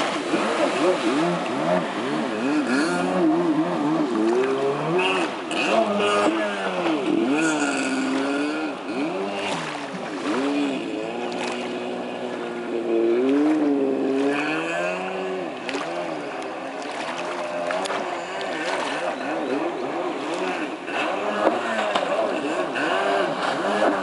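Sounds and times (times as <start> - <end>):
jet ski engine revving: 0.0 - 24.0.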